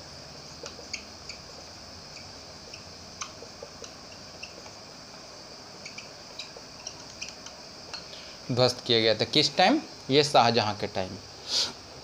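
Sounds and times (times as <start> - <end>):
steady hiss: 0.0 - 12.0.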